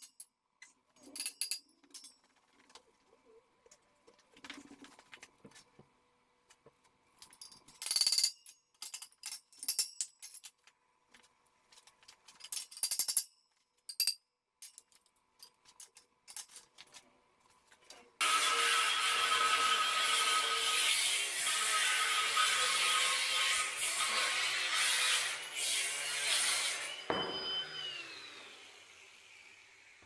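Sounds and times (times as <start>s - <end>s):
metal tools clinking and rattling: 0.0s - 2.6s, 7.2s - 10.7s, 11.7s - 17.0s.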